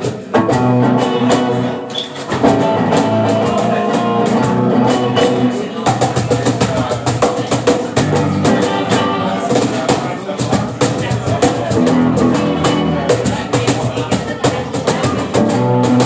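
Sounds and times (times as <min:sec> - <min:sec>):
electric guitar: 0:00.0 - 0:05.6, 0:11.7 - 0:13.3, 0:14.7 - 0:16.0
electric bass: 0:00.4 - 0:05.6, 0:08.0 - 0:09.4, 0:11.7 - 0:13.3, 0:15.0 - 0:16.0.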